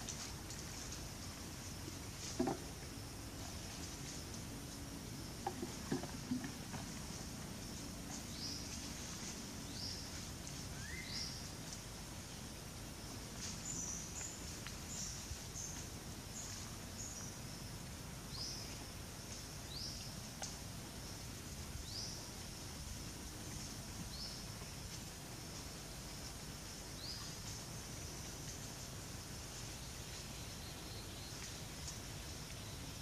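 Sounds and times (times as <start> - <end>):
steady background noise: 0.0 - 33.0.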